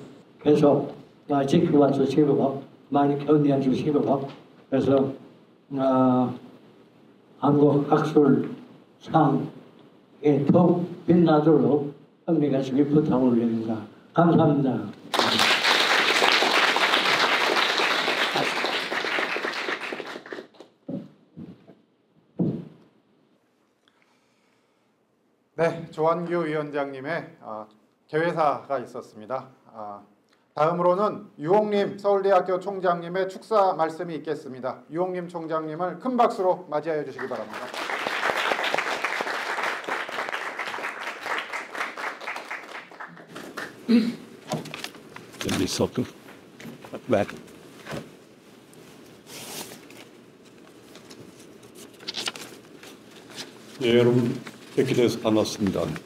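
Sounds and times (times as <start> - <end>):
audience applause: 15.1 - 20.6, 37.2 - 43.8.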